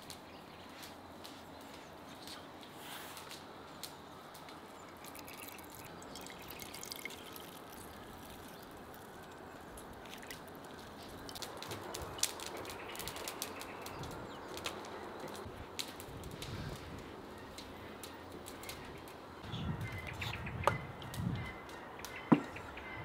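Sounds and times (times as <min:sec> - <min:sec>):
juice dripping into a bowl: 0:04.3 - 0:14.7.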